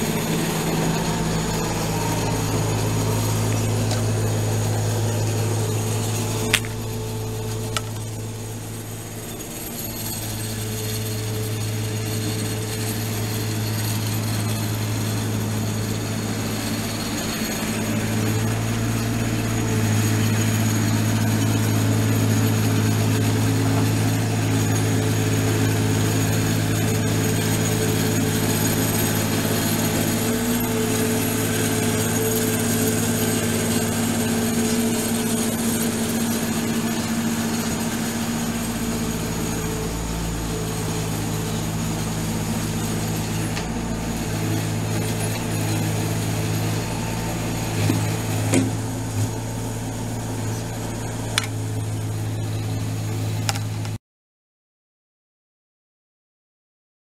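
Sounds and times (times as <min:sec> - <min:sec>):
engine running steadily: 0:00.0 - 0:54.0.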